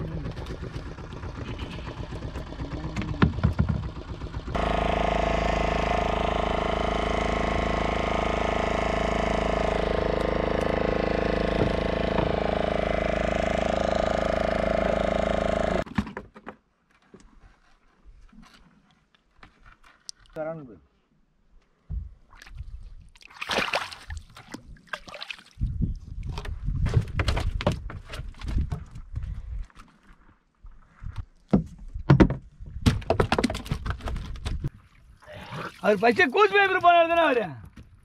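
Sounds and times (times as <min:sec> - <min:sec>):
boat engine running: 0:00.0 - 0:15.8
scattered knocks: 0:02.5 - 0:04.5.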